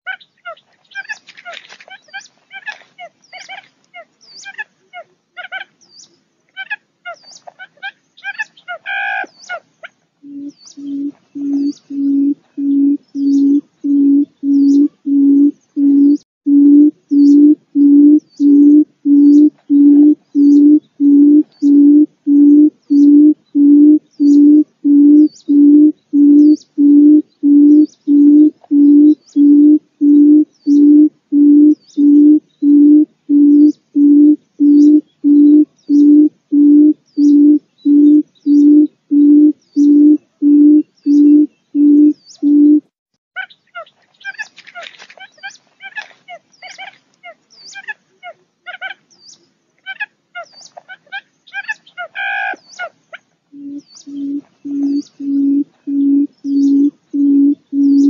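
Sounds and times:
quail hooting call: 0:00.1 - 0:05.7, 0:06.6 - 0:42.8, 0:43.4 - 0:49.0, 0:49.8 - 0:58.0.

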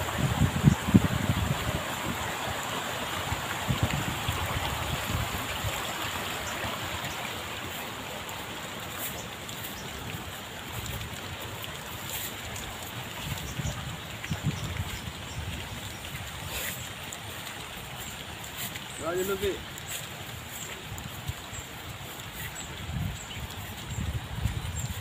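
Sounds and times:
wind buffeting microphone: 0:00.0 - 0:07.2, 0:12.8 - 0:16.9, 0:20.9 - 0:25.0
stream water rushing: 0:00.0 - 0:25.0.

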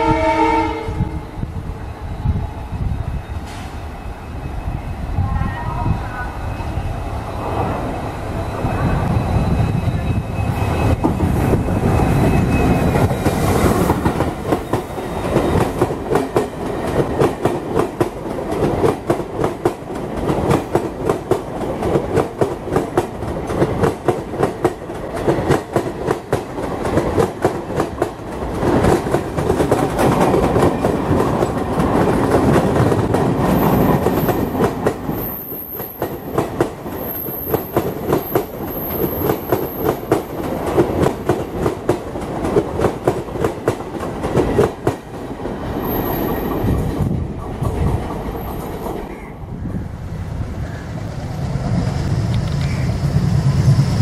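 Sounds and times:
locomotive rumbling past: 0:00.0 - 0:19.2, 0:20.0 - 0:54.0
train wheels clickety-clack: 0:09.6 - 0:49.3.

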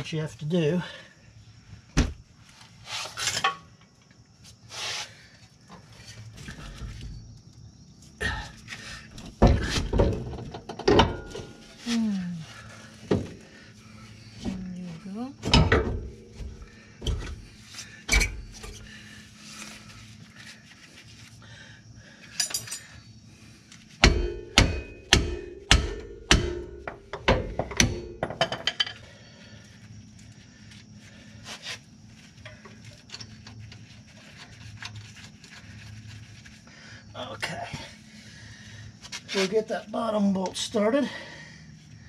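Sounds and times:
hammer striking metal: 0:24.0 - 0:28.4.

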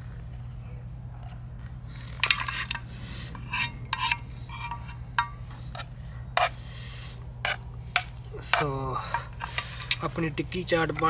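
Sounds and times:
steady low hum: 0:00.0 - 0:11.0
metal spoon scraping a pan: 0:02.2 - 0:06.6, 0:07.4 - 0:10.1.

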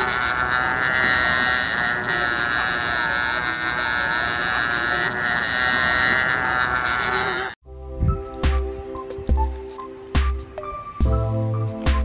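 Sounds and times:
sea lion calling: 0:00.0 - 0:07.6.

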